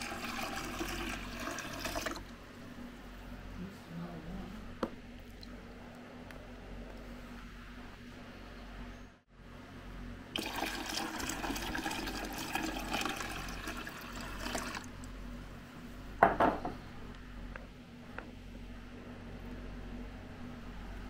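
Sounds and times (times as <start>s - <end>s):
water pouring into tank: 0.0s - 2.3s, 10.4s - 14.9s
loud knock: 16.2s - 16.8s.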